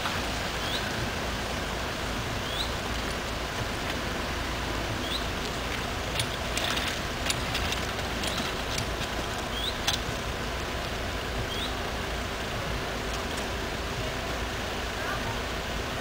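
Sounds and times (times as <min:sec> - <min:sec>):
outdoor background hiss: 0:00.0 - 0:16.0
light clicks and ticks: 0:05.1 - 0:10.2.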